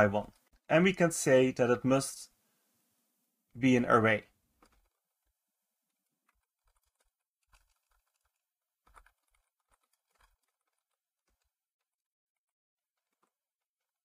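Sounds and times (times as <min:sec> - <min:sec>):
computer keyboard typing: 0:04.6 - 0:05.3, 0:06.0 - 0:12.0, 0:13.0 - 0:14.0.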